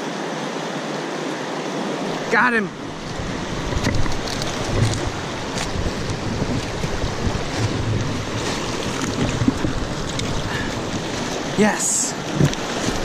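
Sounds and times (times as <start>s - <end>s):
stream rushing over rocks: 0.0s - 13.0s
wind buffeting microphone: 2.8s - 13.0s.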